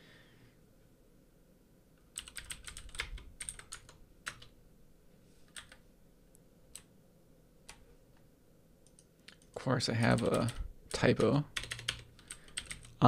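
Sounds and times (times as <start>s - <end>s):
keyboard typing: 2.1s - 4.6s, 5.5s - 5.8s, 8.8s - 13.0s.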